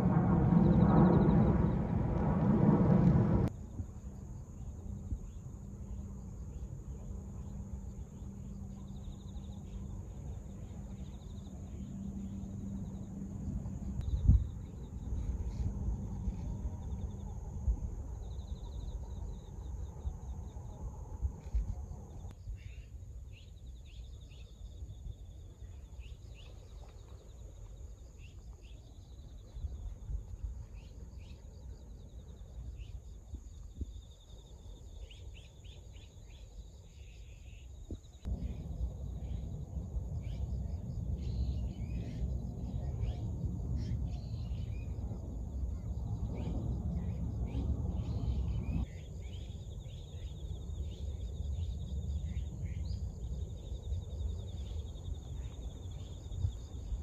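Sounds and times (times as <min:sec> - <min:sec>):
low rumbling noise: 0:00.0 - 0:22.3, 0:38.3 - 0:57.0
insects trilling: 0:30.8 - 0:57.0.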